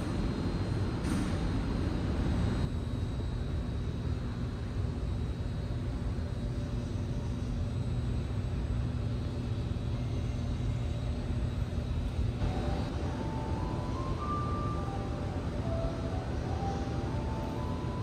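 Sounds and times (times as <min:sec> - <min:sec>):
indoor hall drone: 0:00.0 - 0:18.0
faint musical notes: 0:12.4 - 0:18.0.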